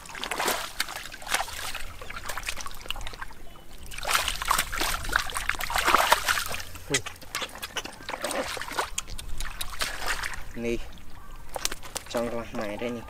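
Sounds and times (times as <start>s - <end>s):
hands splashing in water: 0.0s - 10.6s.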